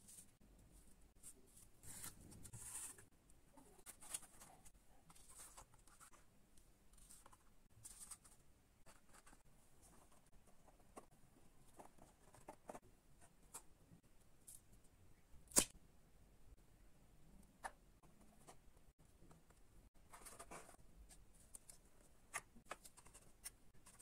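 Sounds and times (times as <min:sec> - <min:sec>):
hands handling cardboard and paper: 0:19.2 - 0:24.0.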